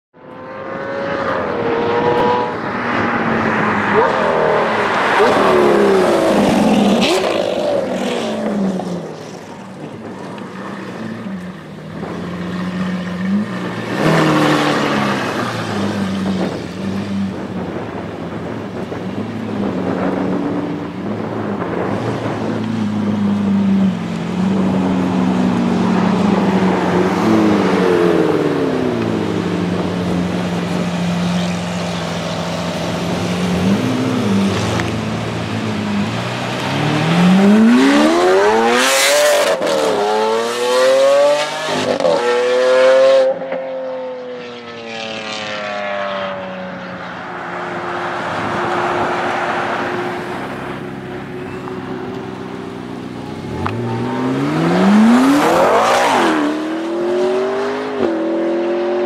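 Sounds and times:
supercar engines revving: 0.2 - 59.0.

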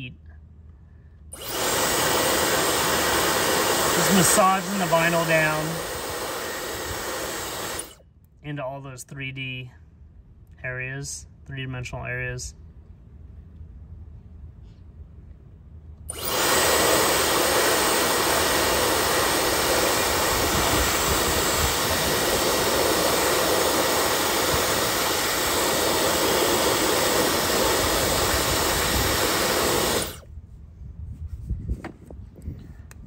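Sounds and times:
hair dryer blowing: 1.3 - 8.0, 16.1 - 30.3.

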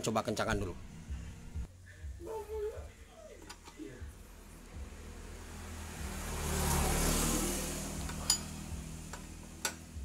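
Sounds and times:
vehicle passing by: 4.0 - 10.0.

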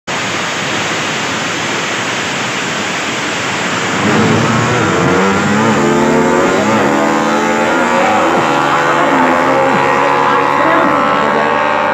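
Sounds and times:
motorcycle engines revving: 3.7 - 11.9.

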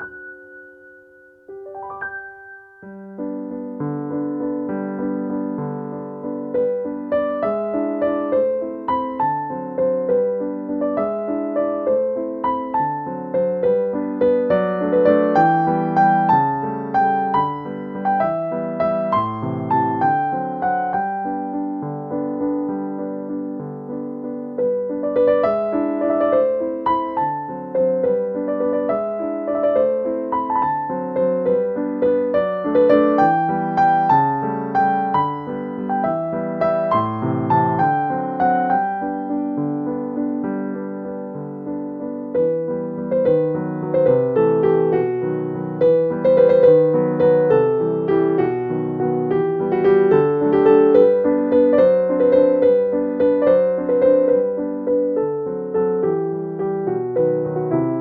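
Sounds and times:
keyboard music: 0.0 - 3.6
gentle piano melody: 0.0 - 58.0.

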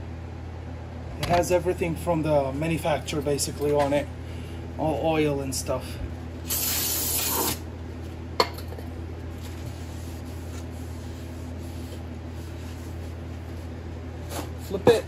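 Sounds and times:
aerosol spray hissing: 6.5 - 7.6.

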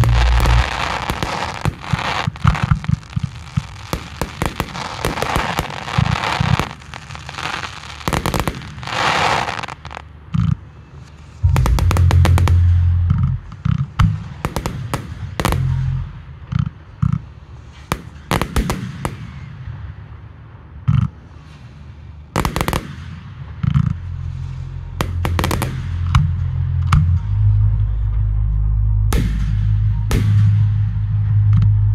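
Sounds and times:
deep rumble: 0.0 - 7.3, 10.9 - 17.5, 23.2 - 31.9
fireworks crackling: 0.0 - 20.2, 21.2 - 26.3
fireworks bursting with sharp bangs: 0.0 - 26.3, 29.1 - 31.0.

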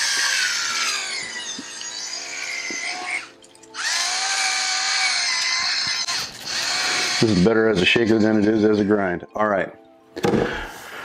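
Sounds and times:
electric salt mill whirring: 0.0 - 7.4.

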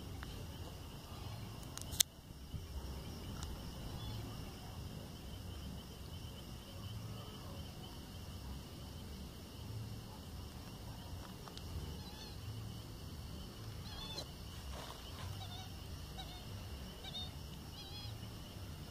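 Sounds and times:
short chirping animal calls: 13.8 - 14.3, 15.2 - 18.2.

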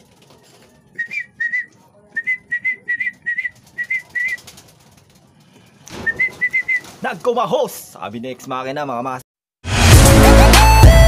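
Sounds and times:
pigeon wings flapping: 0.0 - 1.6, 2.6 - 7.5.

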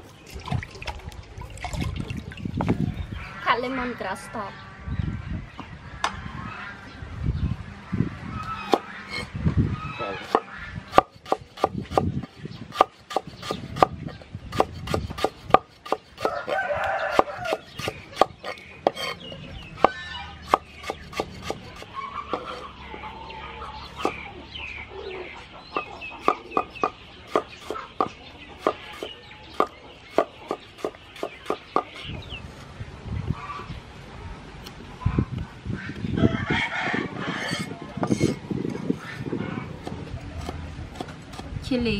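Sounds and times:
chickens clucking: 8.0 - 33.8, 34.8 - 41.6
cleaver chopping on wooden board: 10.2 - 16.5, 17.1 - 19.2, 19.8 - 22.6, 24.0 - 24.2, 25.8 - 32.0
rooster crowing: 16.2 - 17.7, 36.2 - 38.3.

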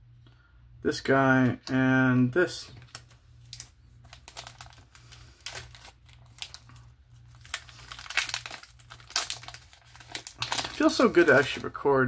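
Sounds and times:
plastic wrapper crinkling: 2.7 - 11.9.

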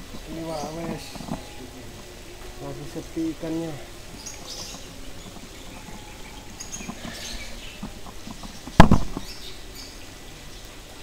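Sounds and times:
small birds chirping: 0.0 - 11.0
loud knock: 8.7 - 9.3.

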